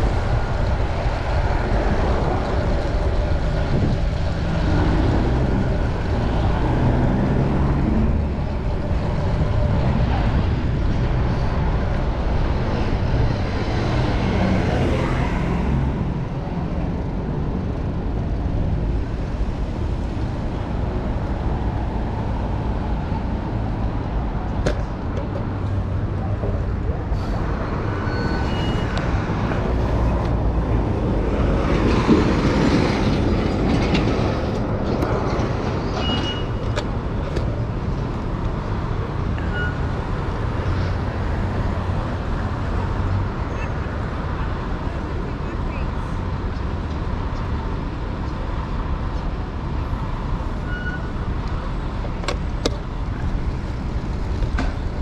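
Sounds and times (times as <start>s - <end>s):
street traffic rushing: 0.0s - 55.0s.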